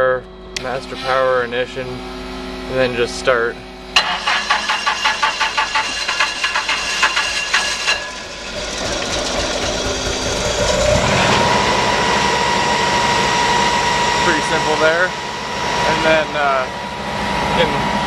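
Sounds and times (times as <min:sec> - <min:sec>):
fan high whine: 0:00.0 - 0:18.0
engine running: 0:00.6 - 0:18.0
engine starter cranking: 0:04.0 - 0:11.8.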